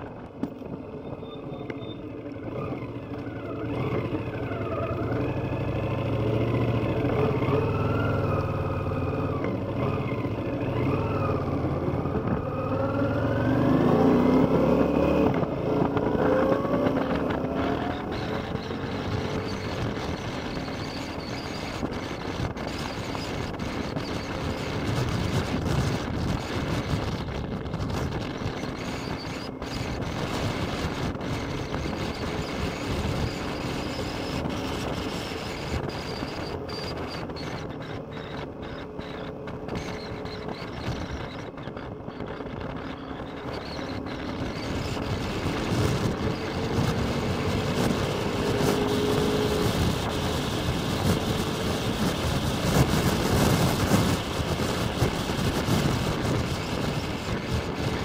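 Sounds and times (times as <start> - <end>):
motorcycle engine running: 0.0 - 58.0
wind noise on microphone: 0.0 - 58.0.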